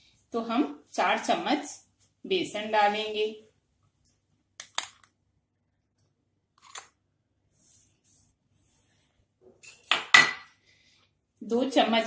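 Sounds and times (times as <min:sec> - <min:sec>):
soft brushing sounds: 0:07.4 - 0:09.4.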